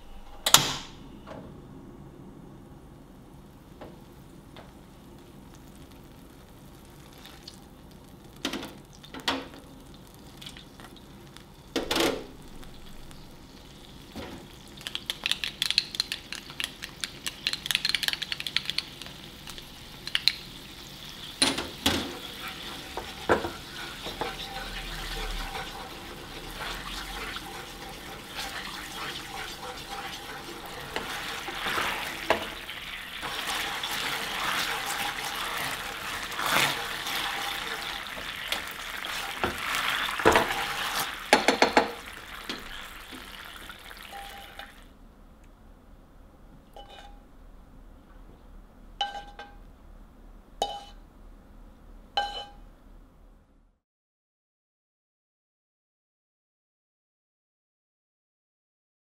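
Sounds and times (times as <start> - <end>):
sauce sizzling in a frying pan: 3.4 - 44.9
wooden spoon scraping and stirring: 22.1 - 42.7, 46.8 - 47.2.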